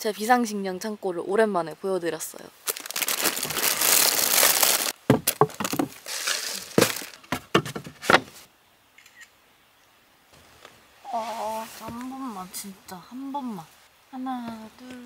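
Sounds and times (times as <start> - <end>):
plastic packaging crinkling: 2.6 - 7.3
cans and bottles knocking: 5.1 - 8.0.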